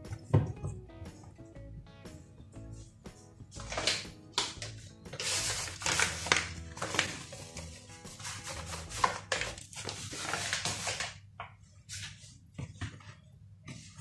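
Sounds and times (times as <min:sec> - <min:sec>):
background music: 0:00.0 - 0:10.9
hands kneading dough: 0:03.1 - 0:14.0.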